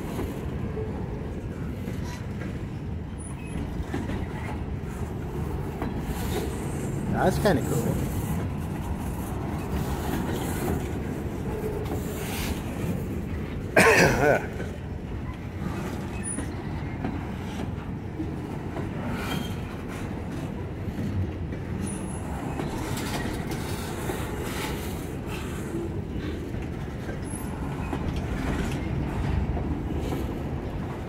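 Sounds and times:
steel wheels rumbling on rails: 0.0s - 31.0s
train wheel squeal: 3.1s - 4.6s, 15.2s - 17.6s, 19.0s - 20.1s, 21.8s - 26.3s.

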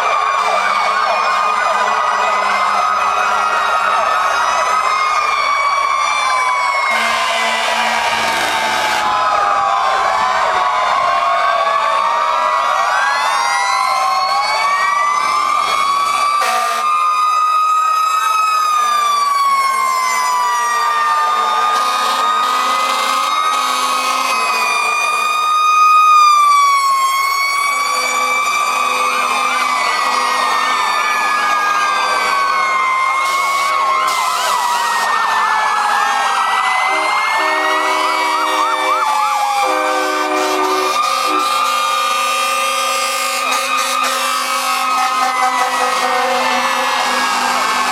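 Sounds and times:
fire truck sirens wailing: 0.0s - 47.9s
low horn blasts: 6.9s - 9.2s, 16.4s - 16.9s, 39.6s - 47.9s.

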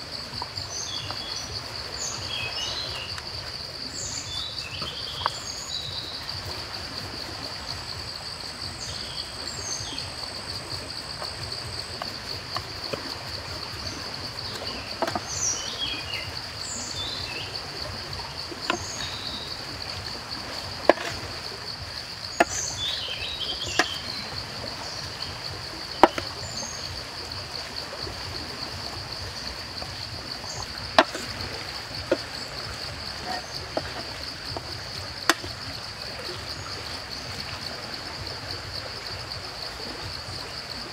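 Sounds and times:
wooden spatula knocking metal tray: 20.9s - 21.2s, 26.0s - 26.2s, 35.3s - 35.5s.

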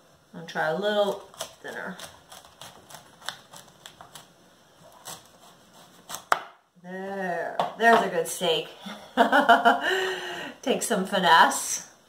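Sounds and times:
knife slicing cauliflower: 1.1s - 6.5s.

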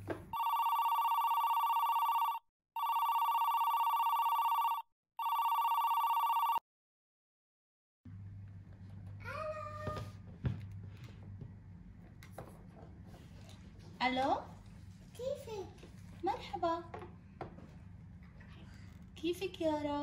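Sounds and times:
telephone ringtone trilling: 0.4s - 6.6s.

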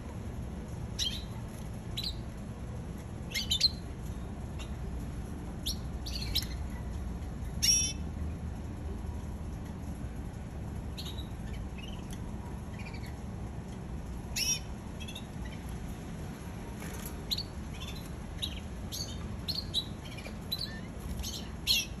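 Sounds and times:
low background hum: 0.0s - 22.0s
canary chirping: 1.0s - 2.2s, 3.3s - 3.9s, 5.6s - 6.8s, 7.6s - 8.0s, 11.0s - 13.2s, 14.3s - 15.7s, 17.3s - 22.0s.

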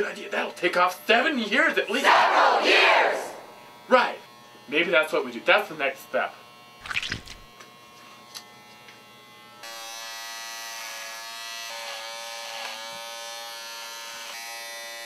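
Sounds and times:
electric hair clippers buzzing: 3.4s - 15.0s.

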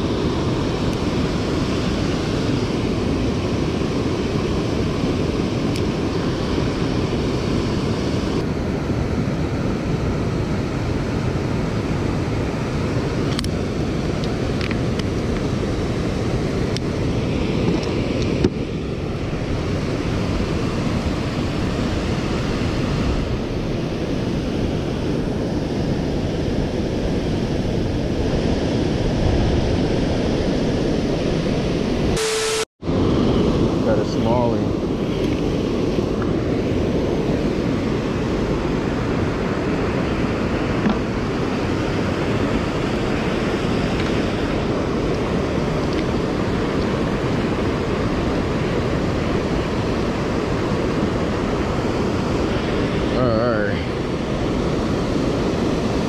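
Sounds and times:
whitewater rushing over dam: 35.7s - 56.0s.

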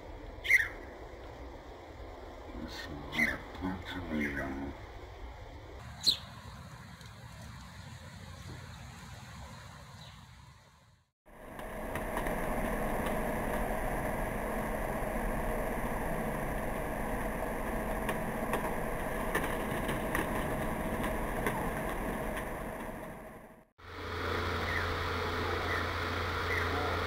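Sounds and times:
low hum: 11.3s - 27.0s.

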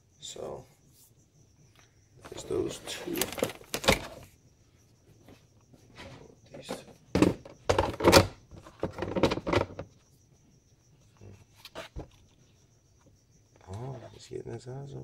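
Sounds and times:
plastic boxes knocking and scraping: 2.2s - 4.3s, 5.2s - 10.0s.

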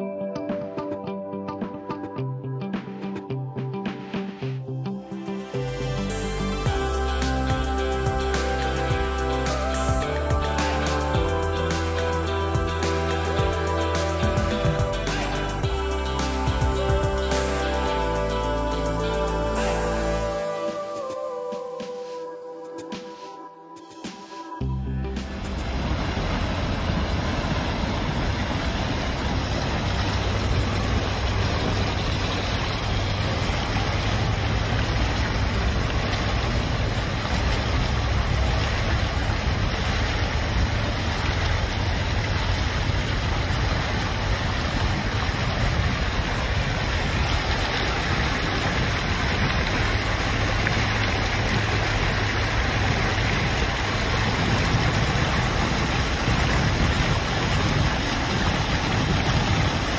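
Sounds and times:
fountain jets splashing into pool: 6.1s - 20.4s, 25.4s - 59.9s
low rumble of road traffic: 24.9s - 59.9s.

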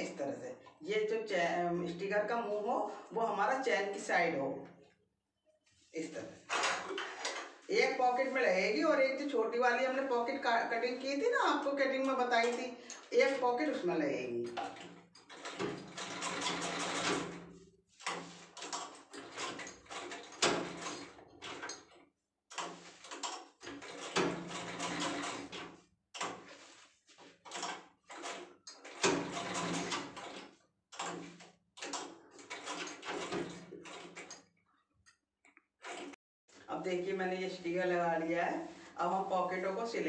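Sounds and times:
sewing machine stitching: 6.4s - 7.7s, 9.9s - 34.5s, 35.8s - 36.2s.

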